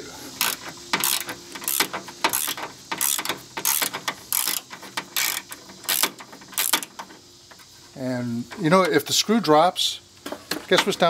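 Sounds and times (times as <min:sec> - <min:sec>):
ratchet wrench clicking: 0:00.4 - 0:07.0.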